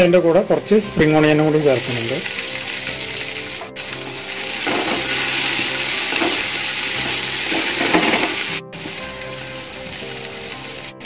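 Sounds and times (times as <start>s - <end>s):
vegetables sizzling in oil: 0.0s - 11.0s.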